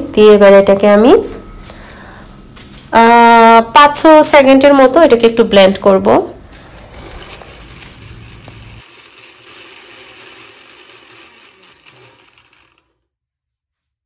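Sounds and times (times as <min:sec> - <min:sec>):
blender grinding nuts: 0:06.5 - 0:13.0.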